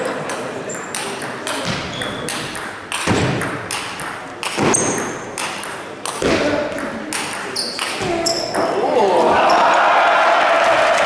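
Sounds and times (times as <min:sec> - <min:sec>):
murmur of spectators: 0:00.0 - 0:11.0
table tennis ball pinging: 0:00.1 - 0:08.8.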